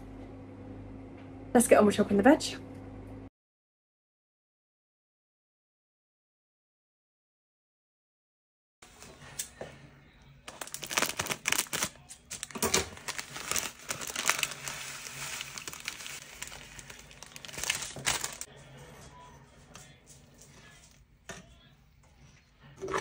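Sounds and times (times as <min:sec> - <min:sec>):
plastic bag crinkling: 0:10.5 - 0:18.5.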